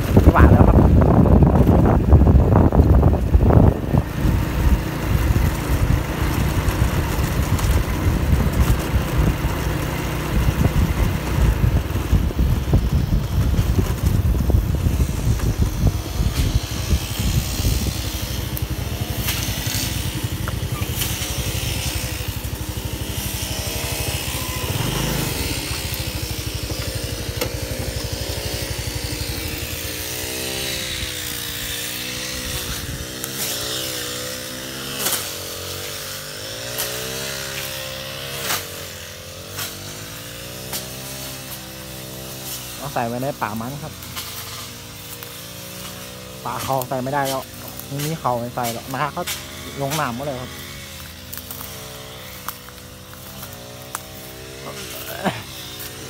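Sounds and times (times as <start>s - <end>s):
wind rumbling on microphone: 0.0s - 31.5s, 32.2s - 33.2s
motor scooter running: 0.0s - 56.0s.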